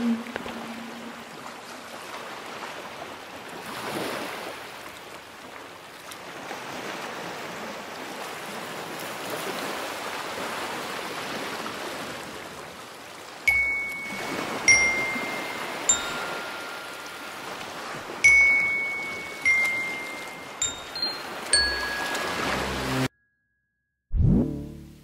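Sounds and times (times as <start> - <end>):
ocean waves washing: 0.0 - 23.1
bright chime ringing: 13.5 - 23.9.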